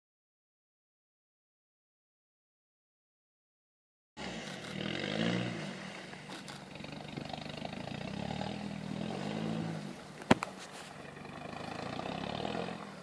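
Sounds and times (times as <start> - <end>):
engine revving: 4.2 - 13.0.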